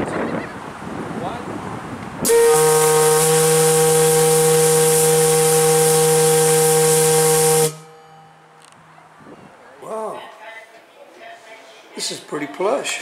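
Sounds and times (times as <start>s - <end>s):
fog-signal whistle blast: 2.3s - 8.4s.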